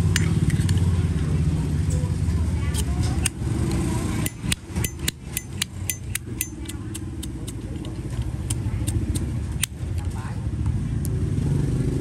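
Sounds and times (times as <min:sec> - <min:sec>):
metallic lighter lid clicks: 0:04.2 - 0:09.8.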